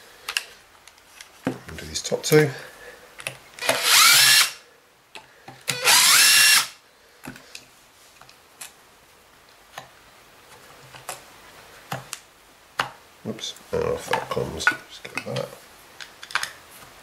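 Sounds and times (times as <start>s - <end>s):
impact driver spinning: 3.6s - 4.6s.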